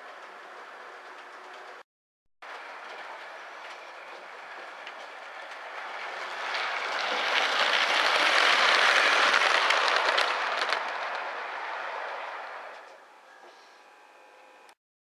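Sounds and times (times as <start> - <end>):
wheels clicking over rail joints: 0.0 - 1.8, 2.5 - 13.1
model train running on track: 2.5 - 13.0.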